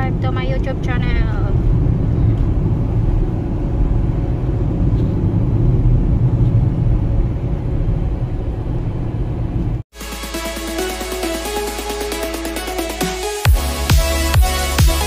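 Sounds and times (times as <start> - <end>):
car driving road noise: 0.0 - 9.9.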